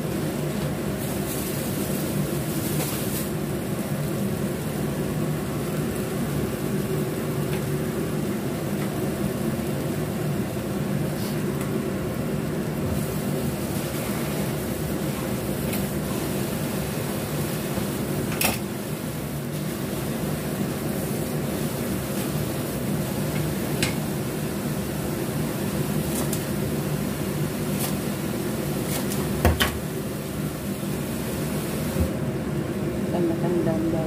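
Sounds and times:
low mechanical hum: 0.0s - 34.0s
food popping in a frying pan: 22.0s - 24.2s.

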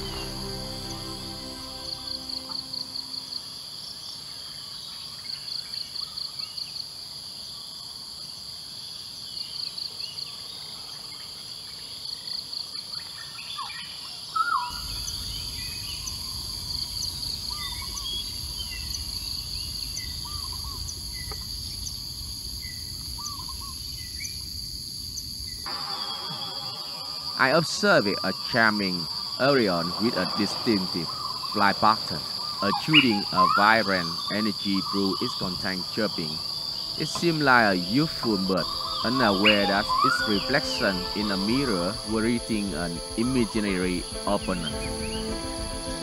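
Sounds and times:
birds chirping: 0.0s - 3.2s, 25.7s - 46.0s
rapid pulsed trills: 0.0s - 3.6s
high insect drone: 0.0s - 46.0s.

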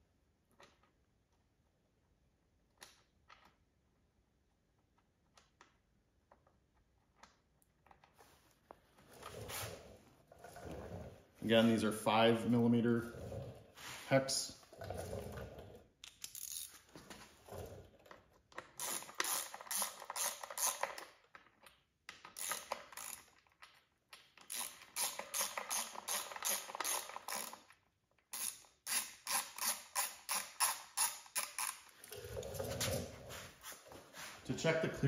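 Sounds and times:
hand ratchet clicking: 16.0s - 16.8s, 18.6s - 21.1s, 22.1s - 23.7s, 24.4s - 27.7s, 28.3s - 32.0s.

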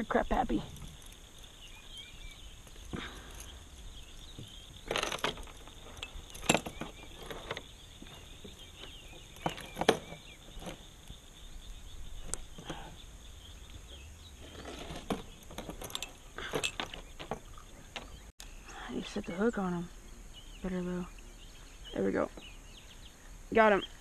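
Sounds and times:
metal chain stringer clinking: 0.0s - 11.1s, 14.4s - 18.2s.

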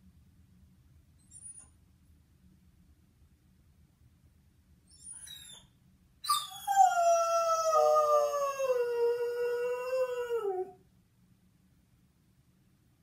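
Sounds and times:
dog howling: 6.3s - 10.8s.

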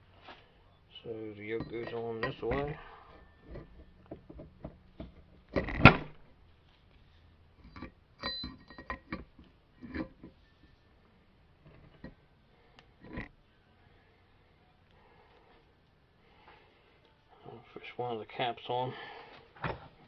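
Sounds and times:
steel parts clinking and knocking: 1.4s - 6.2s, 7.6s - 10.8s, 11.6s - 12.2s, 13.0s - 13.3s.

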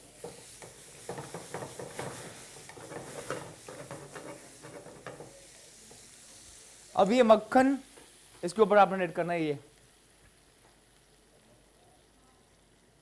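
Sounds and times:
spatula scraping frying pan: 0.0s - 6.2s
oil sizzling: 0.0s - 13.0s.

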